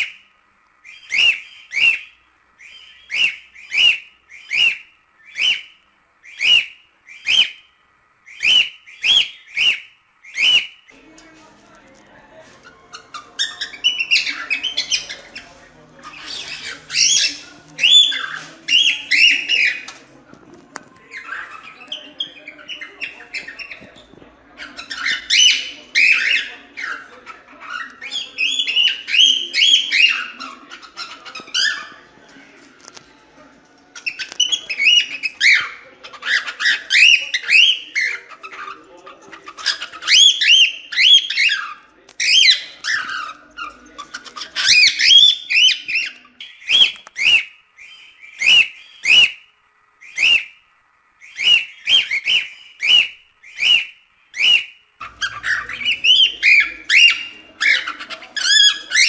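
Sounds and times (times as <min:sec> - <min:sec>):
cockatiel whistling: 0:00.8 - 0:10.8, 0:12.9 - 0:20.0, 0:50.0 - 0:50.6, 0:51.2 - 0:59.0.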